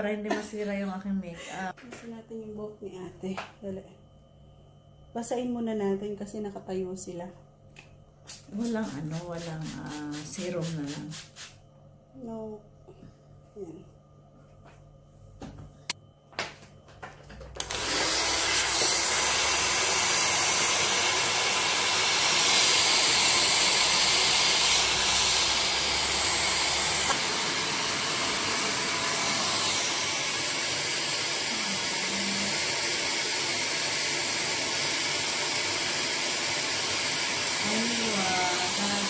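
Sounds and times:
hair dryer blowing: 8.3 - 11.5, 17.6 - 39.0
hair dryer low hum: 8.3 - 11.6, 17.6 - 39.0.

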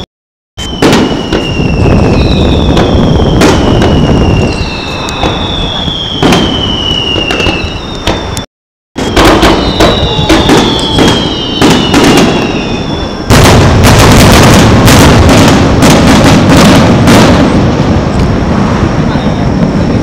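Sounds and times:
whistling shells: 0.6 - 14.6
fireworks bangs and pops: 0.6 - 20.0
fireworks crackling barrage: 0.6 - 20.0.

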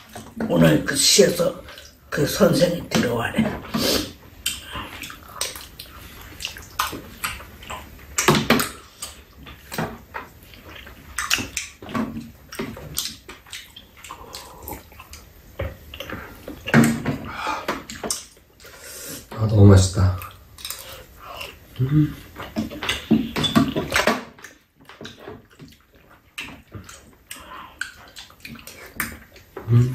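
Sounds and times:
wet chewing and slurping: 3.6 - 19.4, 20.2 - 29.9
cutlery clicking and scraping bowls: 22.4 - 25.8.

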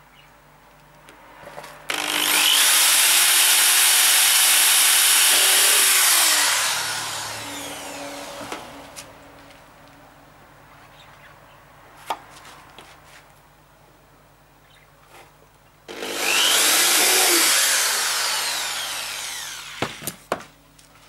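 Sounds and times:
electric drill boring into wood: 1.9 - 8.7, 15.9 - 20.2.

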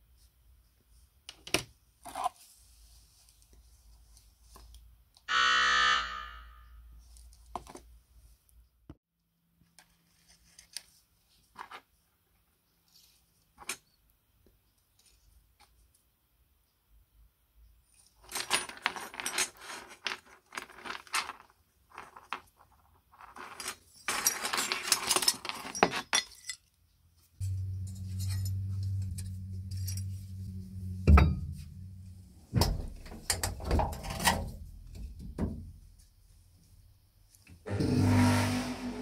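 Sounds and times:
steady low hum: 27.4 - 36.6.

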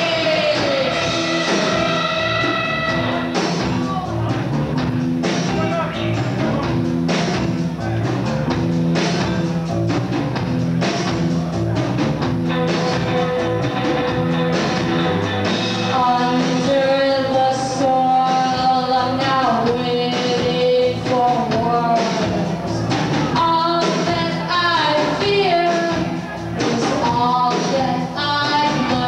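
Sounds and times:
drum beat: 0.0 - 16.7
live rock band playing: 0.0 - 29.0
wavering high note: 0.8 - 3.4.

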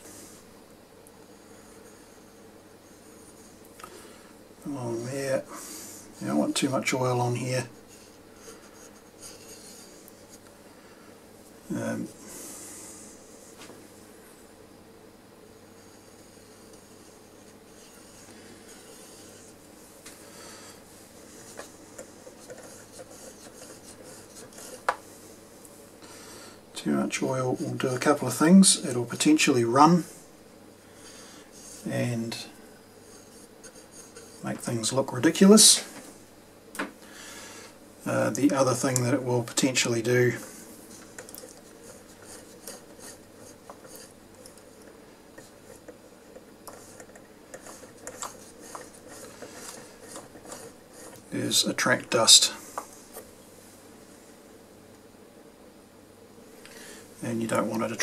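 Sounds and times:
faint ticks and rubbing: 15.8 - 20.2, 21.2 - 25.0, 33.0 - 34.8, 38.3 - 53.3.

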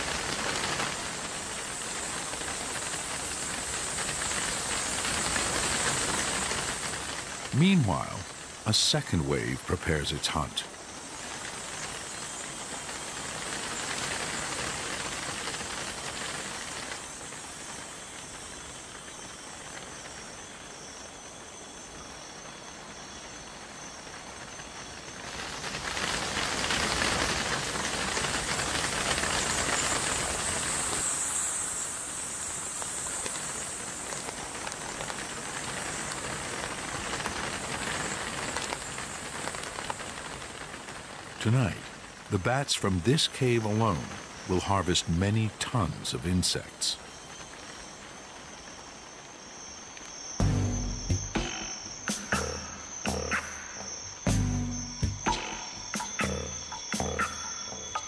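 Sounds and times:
bats swarm rushing hiss: 0.0 - 58.0
high-pitched whine: 50.1 - 58.0.

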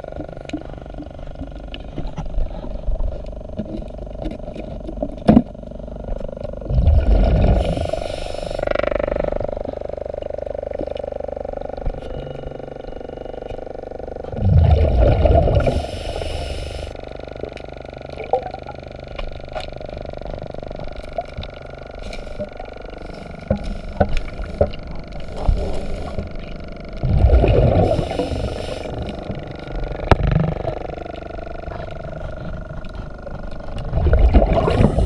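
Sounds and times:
steady hum: 0.0 - 35.0
regulator inhalation hiss: 7.6 - 8.7, 15.6 - 17.0, 25.3 - 26.3, 27.8 - 29.3
regulator exhalation bubbles: 14.3 - 16.0, 27.0 - 29.3, 33.8 - 35.0.

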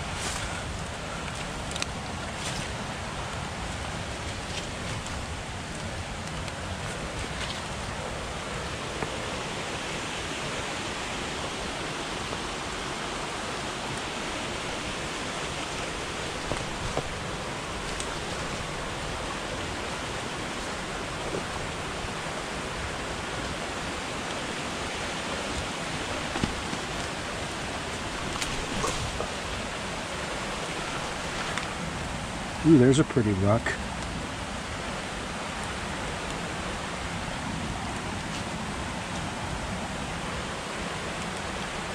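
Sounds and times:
creek water rushing: 0.0 - 41.9.

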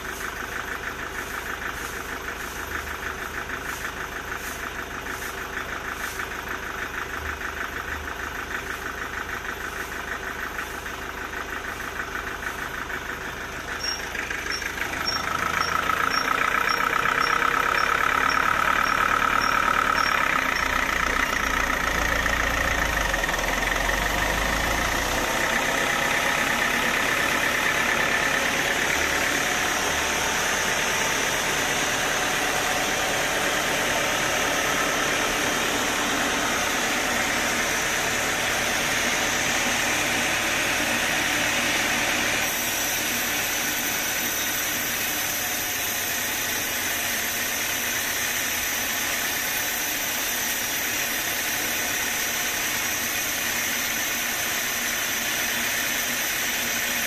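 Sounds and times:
band sawmill running: 0.0 - 57.0
saw blade cutting log: 13.8 - 57.0.

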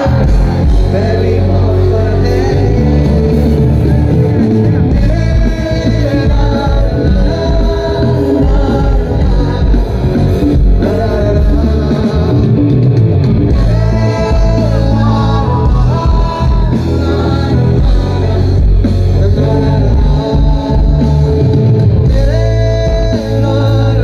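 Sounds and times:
drums: 0.0 - 24.0
electric guitar: 0.0 - 24.0
people singing: 0.0 - 24.0.

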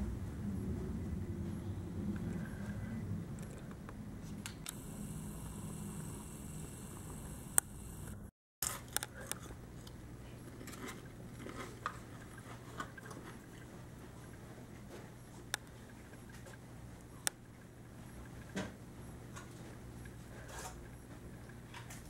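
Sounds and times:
steady low hum: 0.0 - 22.0
sharp click: 7.1 - 8.2.

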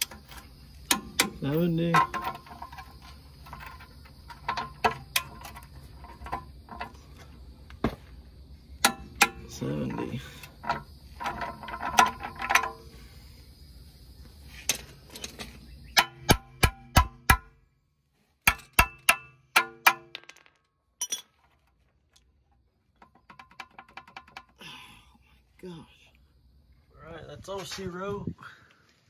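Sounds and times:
wrench clinking on metal: 18.5 - 21.4.

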